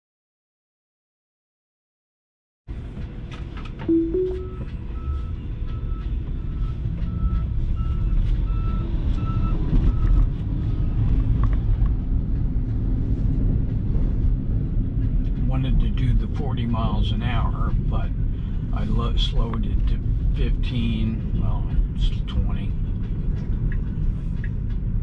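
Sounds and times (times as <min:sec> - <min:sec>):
road and tyre rumble in car: 0:02.7 - 0:25.0
short two-note tone: 0:03.9 - 0:04.7
reversing alarm beeping: 0:03.9 - 0:10.1.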